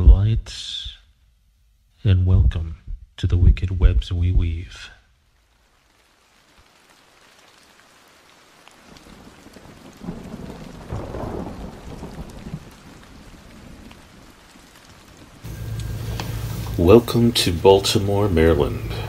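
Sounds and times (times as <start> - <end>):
rain falling: 3.3 - 19.0
thunder rumble: 9.2 - 14.0, 15.4 - 19.0.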